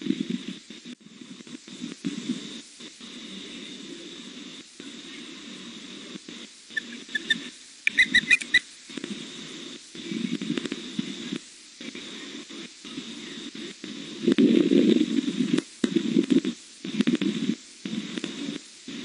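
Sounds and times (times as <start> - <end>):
young osprey chirping: 6.7 - 8.6.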